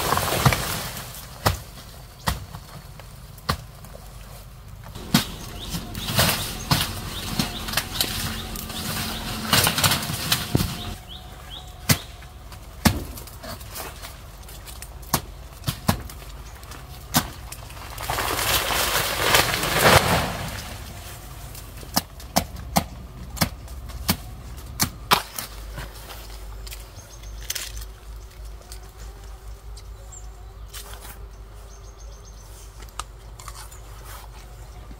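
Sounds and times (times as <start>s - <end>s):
loud rustling: 5.0s - 11.2s.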